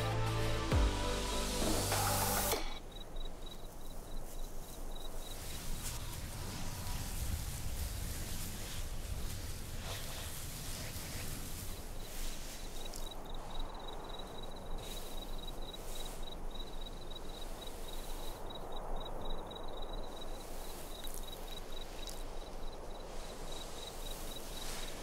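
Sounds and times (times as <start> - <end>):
soft steady hiss: 0.0 - 25.0
insect chirping: 2.3 - 25.0.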